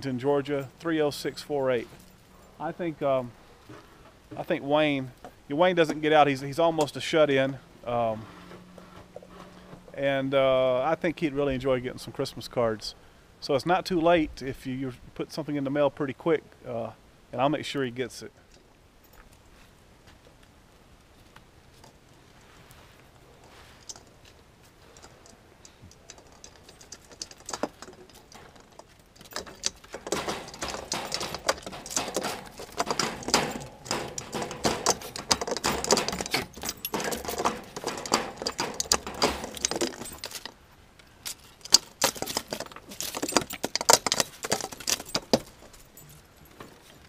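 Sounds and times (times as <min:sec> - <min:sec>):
dog scratching and jingling: 0:24.8 - 0:40.6, 0:41.3 - 0:46.4.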